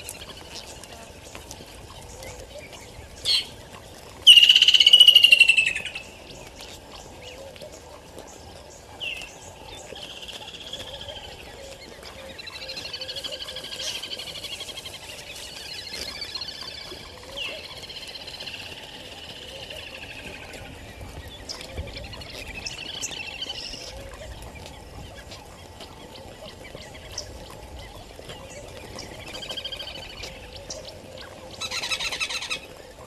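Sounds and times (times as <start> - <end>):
bird harsh rattling call: 4.2 - 6.2.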